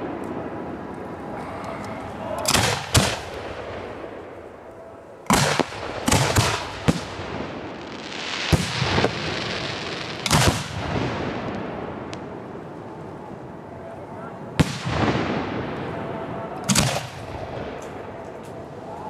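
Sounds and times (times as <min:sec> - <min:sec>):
firework booms: 0:02.1 - 0:04.5, 0:05.3 - 0:12.8, 0:14.5 - 0:18.3.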